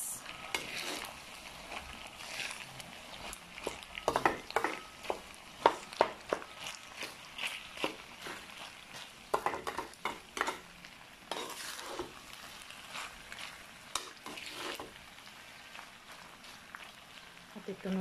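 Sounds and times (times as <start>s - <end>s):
sauce sizzling: 0.0s - 18.0s
spatula scraping metal pan: 0.4s - 1.2s, 11.3s - 12.2s, 13.9s - 14.9s.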